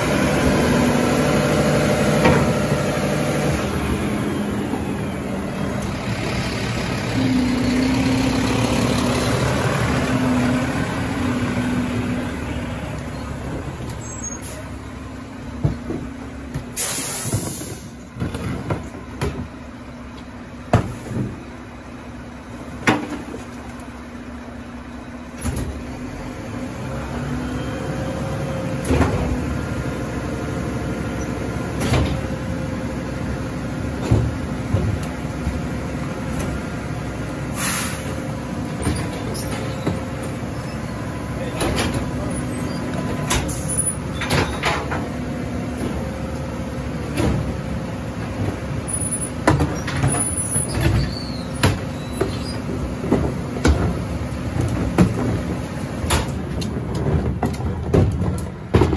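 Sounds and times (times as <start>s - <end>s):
garbage truck engine running: 0.0s - 58.9s
short hiss of air: 16.8s - 18.0s, 37.5s - 38.2s.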